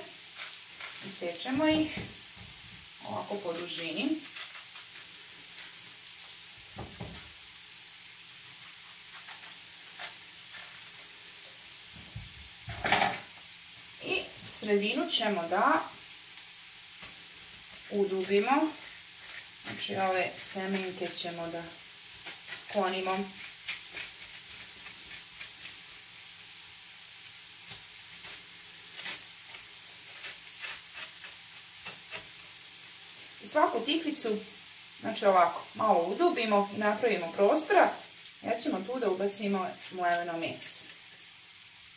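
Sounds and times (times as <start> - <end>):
onion sizzling in a frying pan: 0.0 - 41.9
clicks and scrapes hollowing zucchini: 4.2 - 5.1, 22.2 - 25.9, 27.7 - 32.4.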